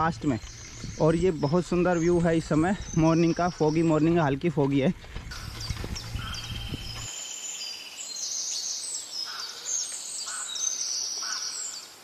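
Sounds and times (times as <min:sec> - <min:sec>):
low rumble: 0:00.0 - 0:07.1
birds trilling and chirping: 0:00.0 - 0:12.0.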